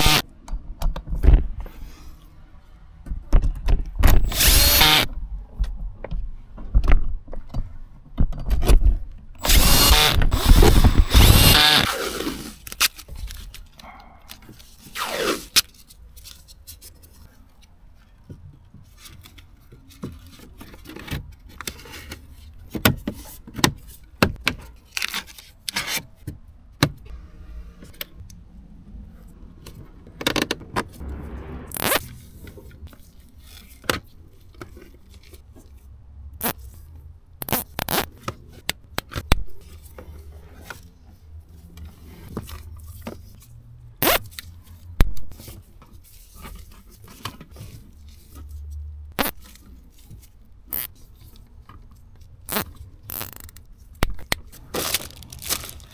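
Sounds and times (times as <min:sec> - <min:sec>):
hands handling wiring cables: 0:49.2 - 0:55.9.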